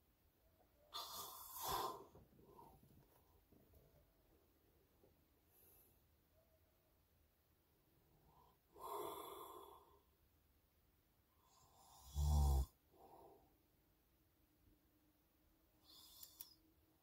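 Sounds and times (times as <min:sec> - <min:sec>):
man snoring: 0:08.8 - 0:09.9, 0:11.5 - 0:12.8.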